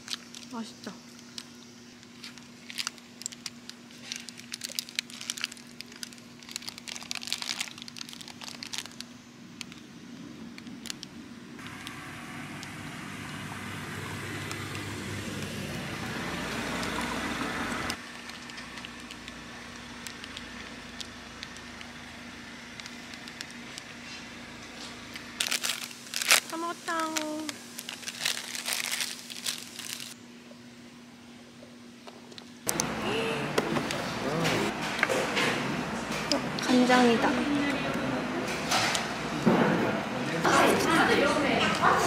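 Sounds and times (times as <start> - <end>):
paper wrapper crinkling: 0.0 - 9.9, 24.8 - 30.2
steady low hum: 0.0 - 42.0
passing car: 11.6 - 18.0.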